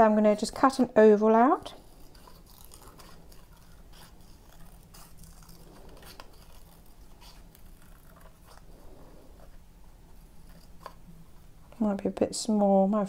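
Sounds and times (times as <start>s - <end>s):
scissors snipping paper: 1.7s - 8.7s.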